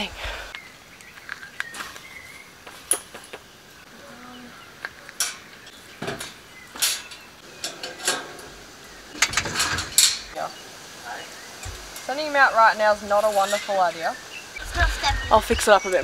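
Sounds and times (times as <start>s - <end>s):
wire panels clinking and rattling: 5.1s - 10.4s
sharp metallic clanks: 9.1s - 10.4s.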